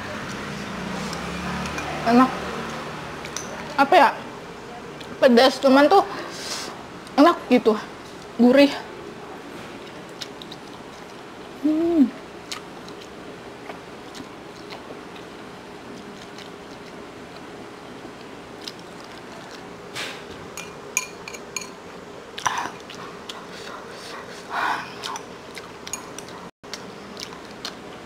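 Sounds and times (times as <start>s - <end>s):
faint steady hum: 0.0s - 28.0s
person humming: 11.6s - 12.2s
slurping and chewing noodles: 12.4s - 19.8s.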